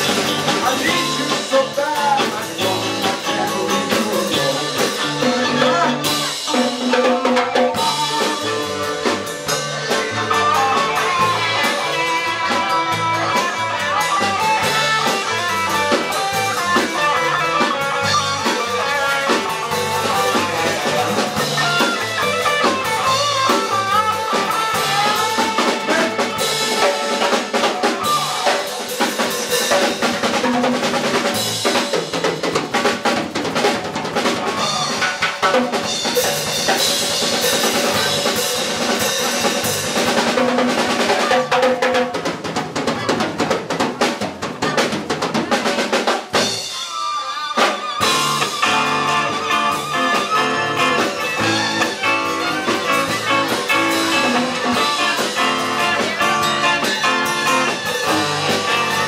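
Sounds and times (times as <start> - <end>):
drum kit beat: 0.0 - 59.0
guitars: 0.0 - 59.0
saxophone: 46.6 - 59.0
violin: 46.7 - 53.3.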